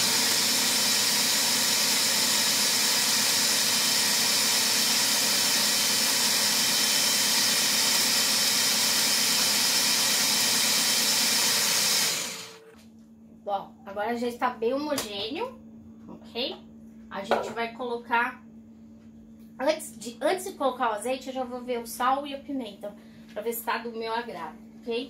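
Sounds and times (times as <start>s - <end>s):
food processor whirring: 0.0s - 12.7s.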